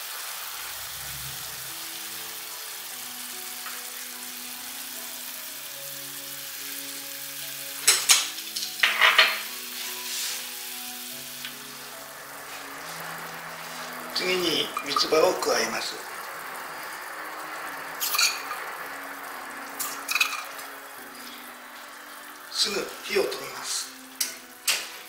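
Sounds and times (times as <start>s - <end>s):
broth bubbling in a pan: 0.0s - 25.0s
utensils clattering against pan: 7.7s - 10.4s, 14.4s - 15.5s, 18.0s - 18.8s, 19.7s - 21.3s, 24.2s - 25.0s
pot stirred with chopsticks: 9.7s - 10.6s.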